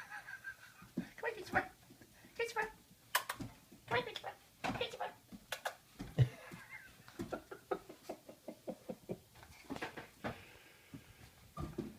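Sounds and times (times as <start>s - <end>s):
person chuckling quietly: 0.0s - 1.1s, 6.0s - 9.4s.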